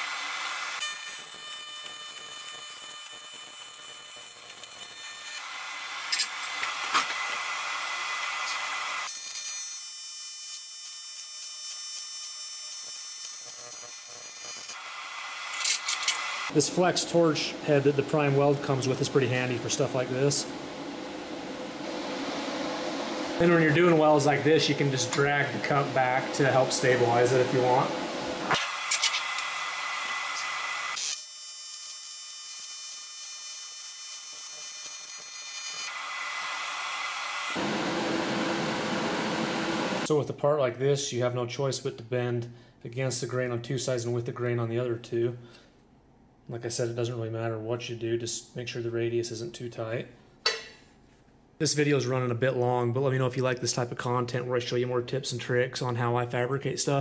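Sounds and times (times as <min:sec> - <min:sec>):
welding arc buzzing: 0:00.0 - 0:16.5, 0:25.1 - 0:40.1
high whine: 0:15.6 - 0:30.6.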